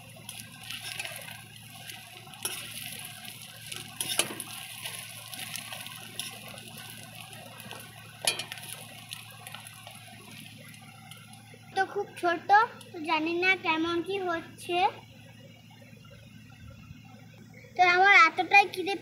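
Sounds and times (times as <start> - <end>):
egg sizzling in oil: 0.0 - 13.4
metal spatula scraping pan: 3.7 - 4.6.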